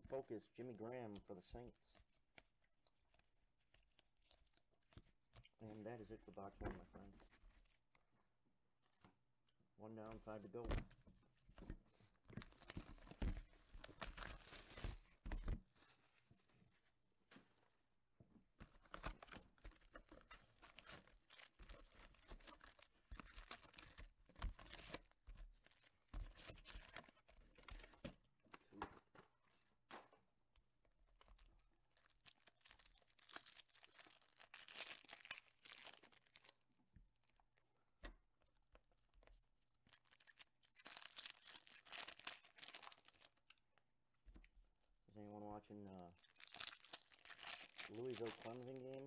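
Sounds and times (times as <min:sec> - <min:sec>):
foil wrappers crinkling and tearing: 0:12.4 - 0:15.0, 0:18.8 - 0:27.8, 0:32.0 - 0:36.6, 0:39.9 - 0:43.6, 0:46.2 - 0:49.0.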